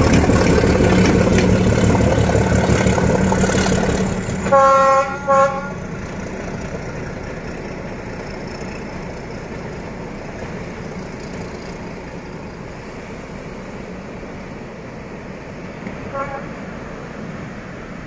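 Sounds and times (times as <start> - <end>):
diesel locomotive engines rumbling: 0.0 - 18.0
short train horn toot: 4.4 - 5.8, 16.0 - 16.7.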